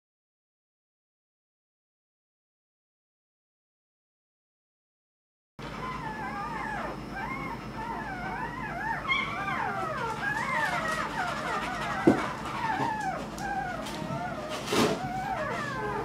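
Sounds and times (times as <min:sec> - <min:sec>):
puppies whimpering and squeaking: 0:05.6 - 0:16.0.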